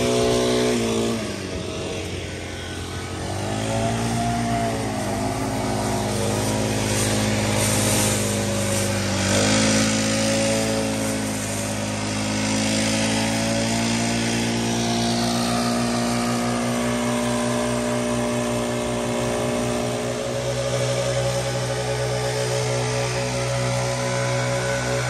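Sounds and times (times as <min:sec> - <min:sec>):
air rushing through nozzles: 0:00.0 - 0:25.0
leaf blower engines running: 0:00.0 - 0:25.0.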